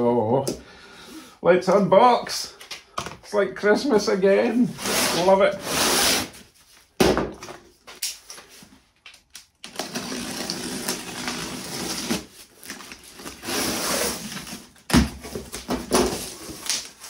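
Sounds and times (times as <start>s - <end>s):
packing tape ripping off box: 9.6s - 17.0s.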